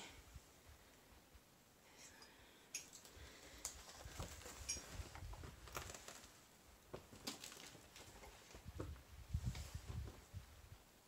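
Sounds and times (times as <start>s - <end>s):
debris crackling underfoot: 2.9s - 8.9s.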